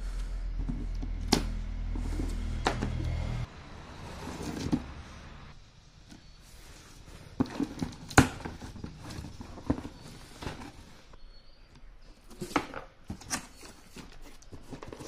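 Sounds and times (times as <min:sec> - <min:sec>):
cardboard and tape rustling: 0:06.6 - 0:11.1, 0:12.0 - 0:15.0.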